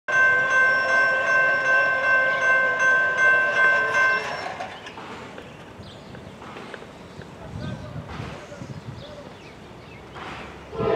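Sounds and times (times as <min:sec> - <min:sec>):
railroad crossing bell ringing: 0:00.1 - 0:05.8.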